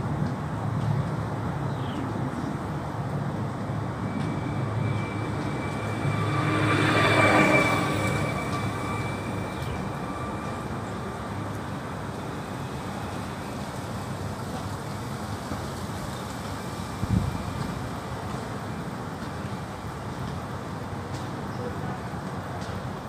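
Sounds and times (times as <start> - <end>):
thin steady tones: 3.9 - 14.3.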